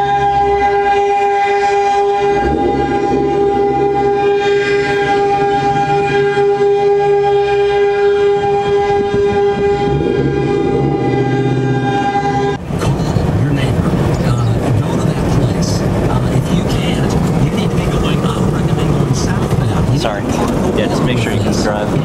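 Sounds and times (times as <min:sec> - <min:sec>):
steady horn-like tone: 0:00.0 - 0:12.6.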